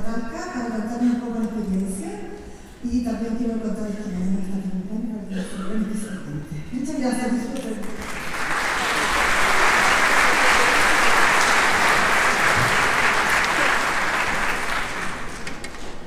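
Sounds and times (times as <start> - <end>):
audience applauding: 7.8 - 16.0.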